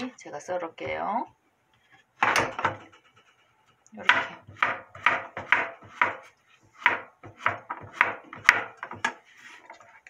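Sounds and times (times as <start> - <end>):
knife chopping on wooden board: 2.2 - 2.9, 4.0 - 9.2.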